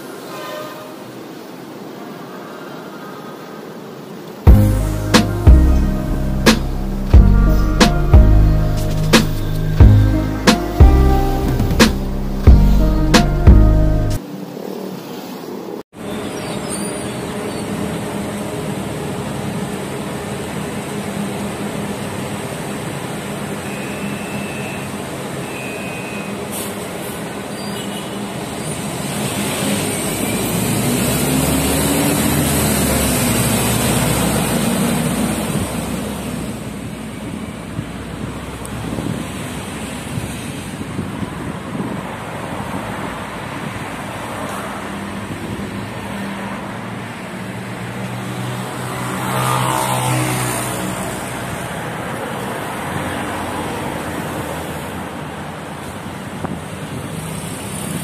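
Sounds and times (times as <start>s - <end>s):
street traffic: 0.0s - 58.0s
bus engine running: 4.5s - 14.2s.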